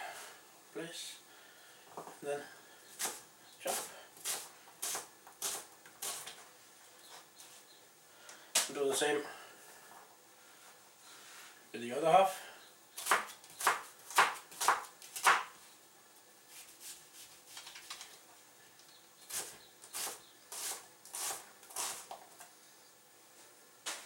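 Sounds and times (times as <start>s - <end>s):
knife cutting onion on board: 3.0s - 6.4s, 13.0s - 15.5s, 19.3s - 22.2s.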